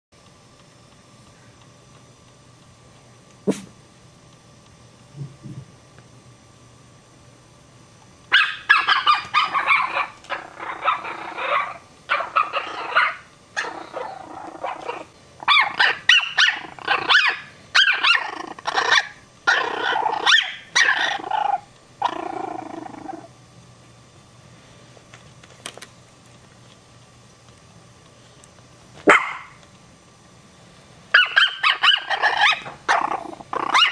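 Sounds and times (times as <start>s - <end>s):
puppies yipping and growling: 8.3s - 23.3s, 31.2s - 33.9s.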